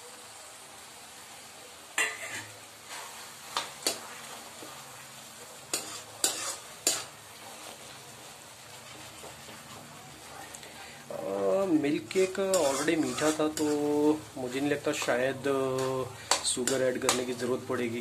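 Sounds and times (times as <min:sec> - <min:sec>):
low sizzle: 0:00.0 - 0:18.0
metal spoon scraping pan: 0:02.0 - 0:03.2, 0:05.7 - 0:07.1, 0:11.9 - 0:17.6.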